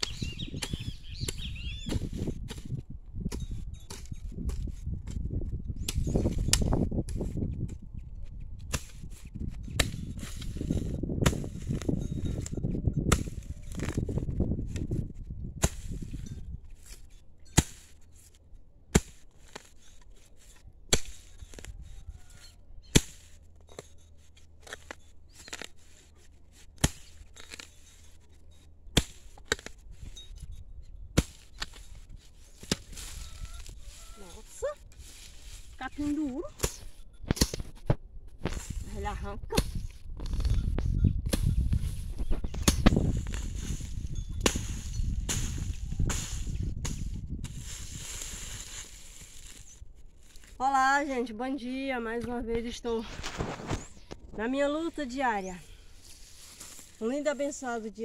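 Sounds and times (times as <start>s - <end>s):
hoe chopping into soil: 8.6s - 15.0s, 15.6s - 16.2s, 16.8s - 21.7s, 22.9s - 30.1s, 31.1s - 34.1s, 34.9s - 38.9s, 39.5s - 40.6s, 41.2s - 49.7s.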